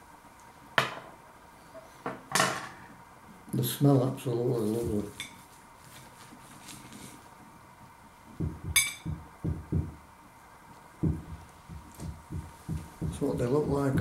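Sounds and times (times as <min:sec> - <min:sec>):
knife clinking on ceramic plate: 0:08.8 - 0:09.1.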